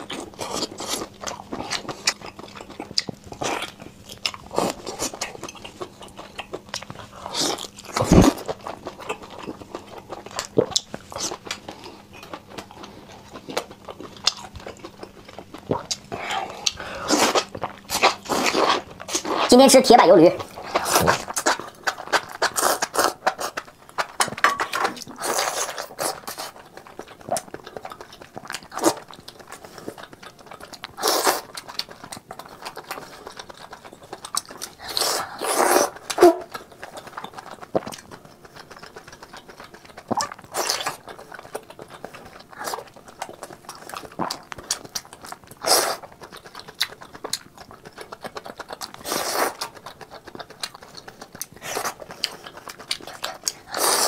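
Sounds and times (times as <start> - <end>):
chewing with wet mouth noises: 0.0 - 54.0
slurping mushrooms: 30.7 - 44.5, 48.0 - 54.0.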